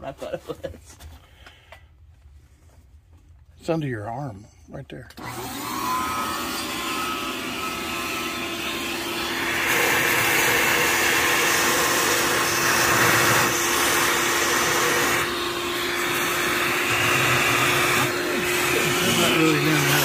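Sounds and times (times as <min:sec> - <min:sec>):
vacuum cleaner running: 0:05.2 - 0:20.0.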